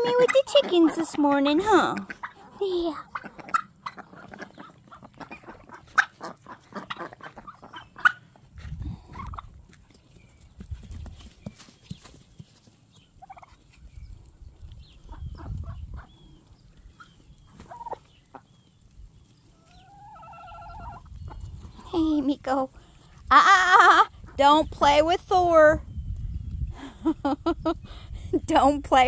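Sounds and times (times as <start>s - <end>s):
turkey drumming hums: 0.0s - 24.5s
turkey spitting: 2.0s - 8.4s.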